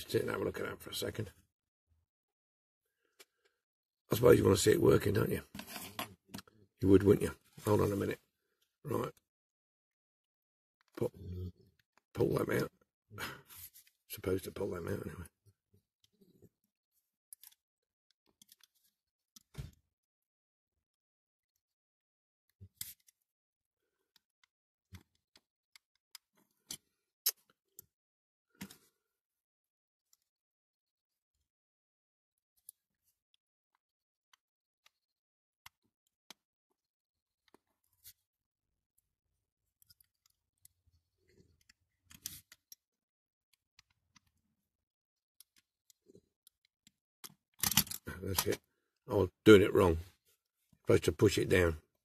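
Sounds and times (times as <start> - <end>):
clicks and taps of small parts: 17.3 - 17.6, 18.2 - 19.8, 39.8 - 42.9, 45.4 - 48.7
toy lorry parts clicking: 47.2 - 48.6.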